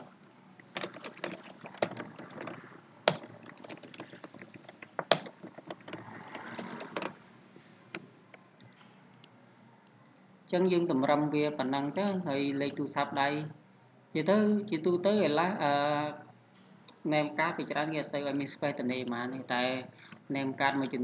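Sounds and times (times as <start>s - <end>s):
typing on computer keyboard: 0.0s - 7.2s.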